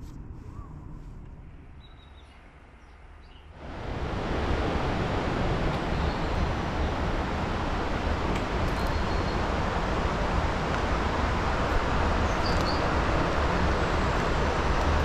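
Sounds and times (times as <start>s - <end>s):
river water flowing: 3.6s - 15.0s.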